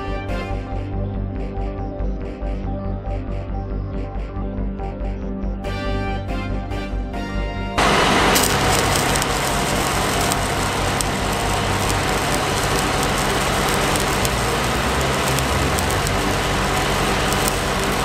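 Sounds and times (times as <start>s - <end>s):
welder engine humming: 7.8s - 18.0s
welding arc crackling: 7.8s - 18.0s.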